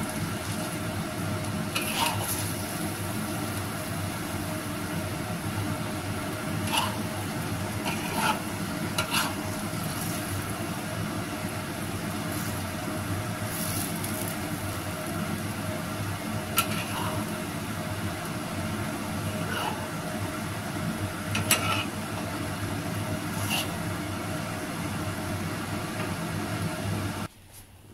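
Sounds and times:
noodles sizzling in a wok: 0.0 - 27.3
steady low hum: 0.0 - 27.9
metal spatula scraping a wok: 1.7 - 2.7, 6.5 - 10.4, 16.5 - 17.4, 19.4 - 20.0, 21.4 - 22.0, 23.3 - 23.8.

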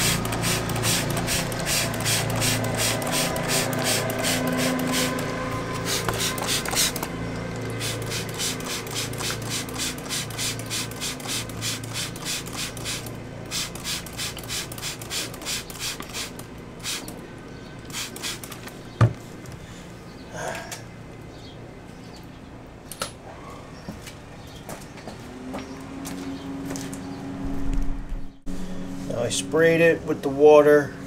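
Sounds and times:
spray bottle squirting: 0.0 - 17.2, 17.9 - 18.8.

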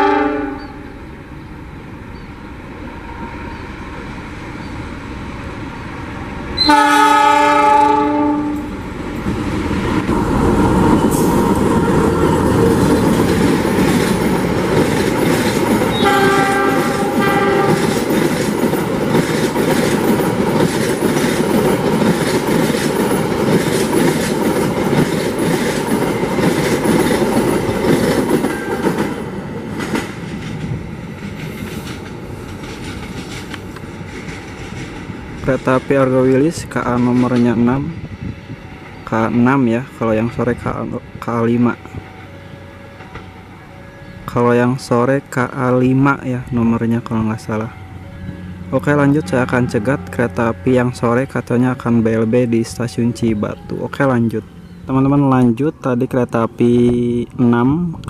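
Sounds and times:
train horn blast: 0.0 - 1.0, 6.6 - 8.8, 15.8 - 18.0, 28.5 - 29.2, 47.6 - 53.8
locomotive engine running: 8.6 - 35.5
wheels clattering over rail joints: 9.0 - 37.6.

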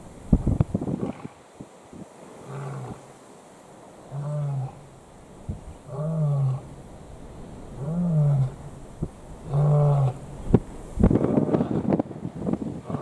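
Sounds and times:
lion calling: 4.1 - 4.9, 5.9 - 6.8, 7.7 - 8.8, 9.4 - 10.5.

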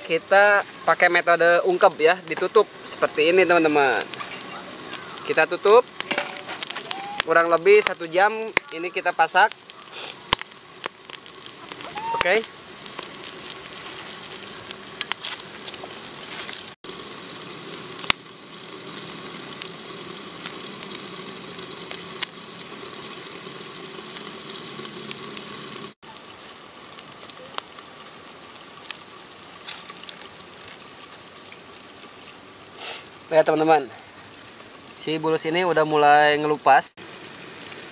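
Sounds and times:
pot sizzling: 0.0 - 37.9
wood fire crackles: 0.0 - 37.9.

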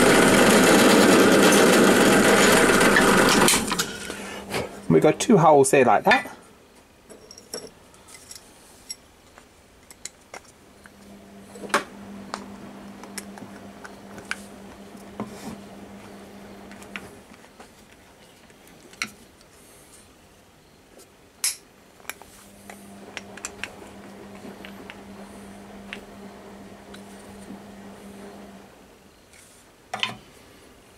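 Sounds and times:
low steady hum: 3.5 - 6.6, 10.6 - 17.4, 22.0 - 29.1.

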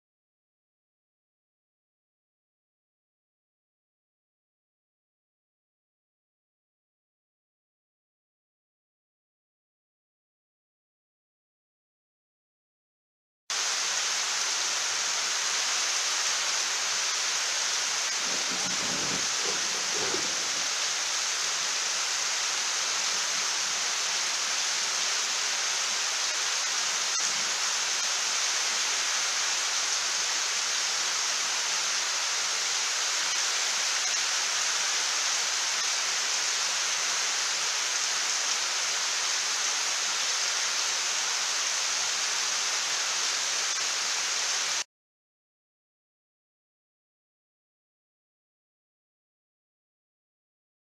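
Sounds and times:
heavy rain falling: 13.5 - 44.8.

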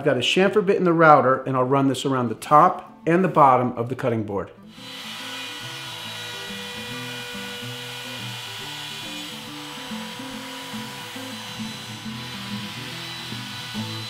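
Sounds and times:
trim router whining: 4.7 - 14.0.

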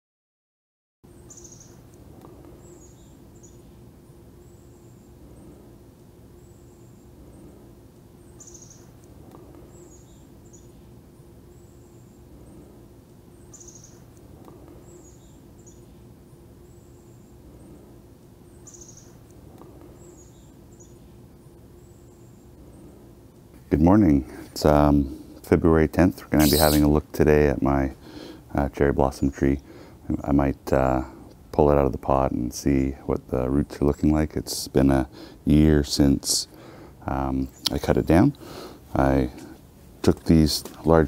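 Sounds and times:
songbird singing: 1.1 - 23.2, 26.4 - 26.9, 37.1 - 38.3
faint hum: 1.1 - 41.0.

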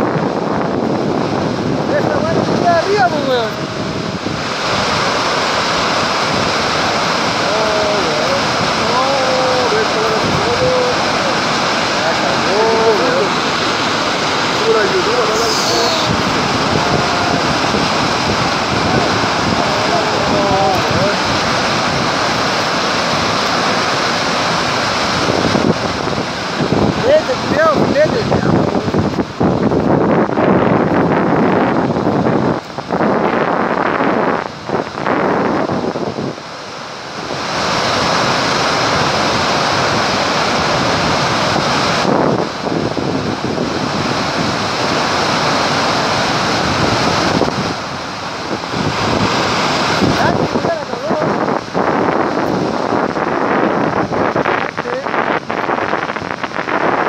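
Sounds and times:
heavy waterfall rushing: 0.0 - 57.0
wind buffeting microphone: 0.0 - 57.0.

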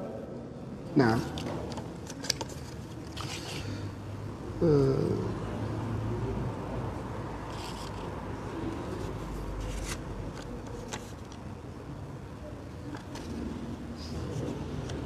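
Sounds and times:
paper crinkling and rustling: 1.7 - 3.8, 9.0 - 11.5.

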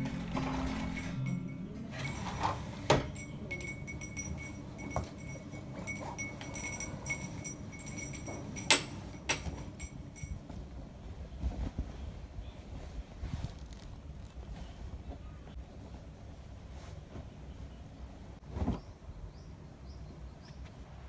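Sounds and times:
curtain clicks and clinks: 0.0 - 10.4.

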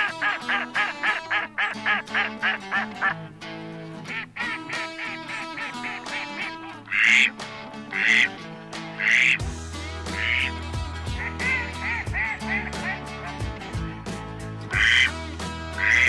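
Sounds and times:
duck quacks: 0.0 - 3.2, 4.1 - 8.3, 9.0 - 9.4, 10.1 - 13.5, 14.7 - 15.2, 15.8 - 16.0
music: 0.0 - 16.0.

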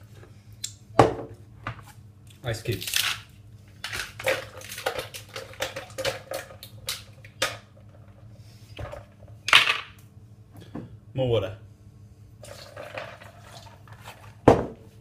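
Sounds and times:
ice cubes clacking into blender jug: 3.8 - 7.7.

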